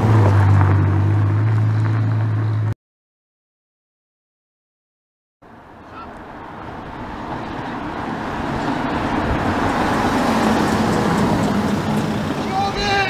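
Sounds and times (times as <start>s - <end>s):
car passing by: 5.6s - 13.0s.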